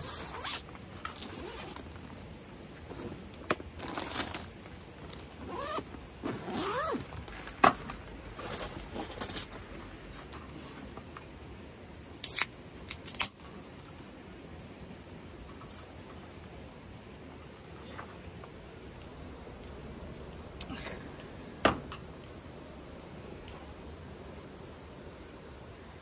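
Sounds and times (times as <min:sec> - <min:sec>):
can opening hiss: 0:12.2 - 0:13.3.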